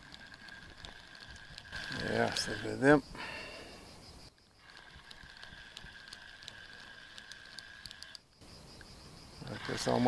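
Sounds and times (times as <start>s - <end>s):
fishing reel whirring and ticking: 0.0s - 3.0s, 4.4s - 8.4s, 9.4s - 10.0s.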